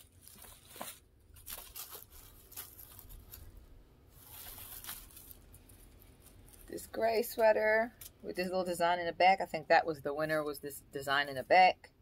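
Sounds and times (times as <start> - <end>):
clothing rustling: 0.0 - 8.1.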